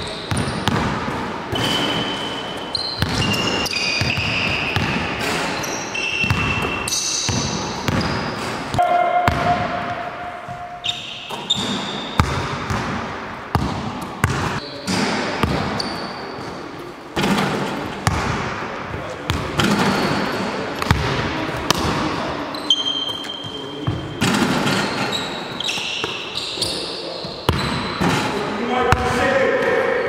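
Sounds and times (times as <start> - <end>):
basketball shoes squeaking: 0.0 - 29.3
basketballs bouncing on hardwood: 0.3 - 1.7, 3.0 - 5.3, 6.2 - 10.6, 11.3 - 14.6, 15.4 - 15.9, 17.2 - 18.5, 20.8 - 22.0.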